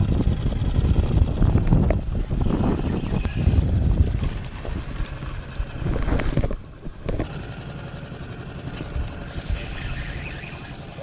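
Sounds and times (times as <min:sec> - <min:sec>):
wind buffeting microphone: 0:00.0 - 0:07.3.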